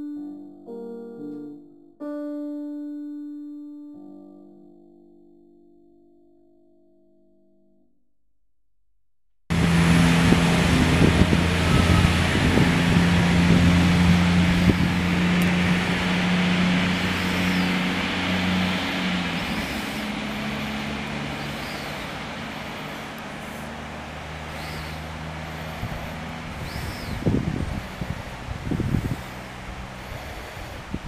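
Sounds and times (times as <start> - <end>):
diesel railcar engine drone: 9.5 - 31.0
steady hiss: 12.6 - 31.0.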